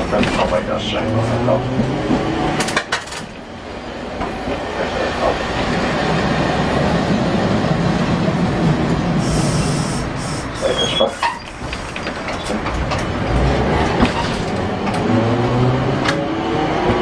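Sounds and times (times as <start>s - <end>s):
tram wheels and motors rumbling: 0.0s - 17.0s
high-pitched wheel squeal: 9.3s - 11.6s.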